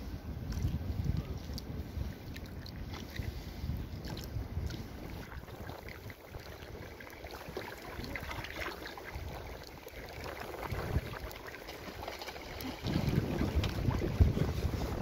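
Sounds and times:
paddle splashing and dripping: 0.0 - 15.0
water lapping against hull: 0.0 - 15.0
wind rumble on microphone: 0.0 - 15.0.

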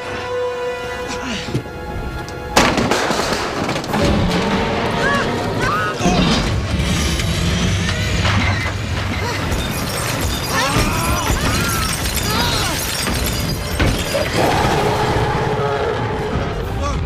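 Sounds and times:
metal and glass crashing: 6.1 - 15.2.

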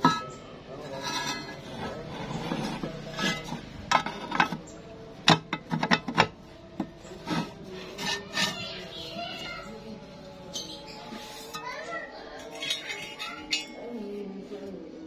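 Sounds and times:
metal clinks and scrapes: 0.0 - 4.7, 7.0 - 9.5, 10.5 - 14.2.

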